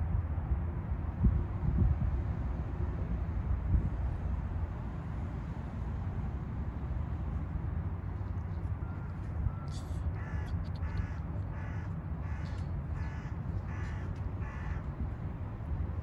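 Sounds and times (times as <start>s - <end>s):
crow cawing: 10.2s - 14.9s.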